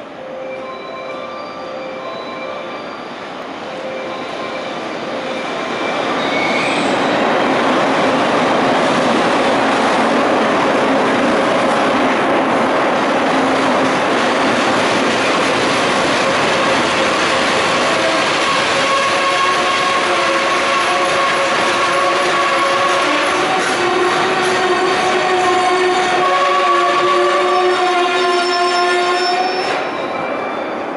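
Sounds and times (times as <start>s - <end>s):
train wheels rolling: 3.0s - 28.5s
wheel and brake squeal: 4.1s - 7.2s, 27.5s - 30.8s.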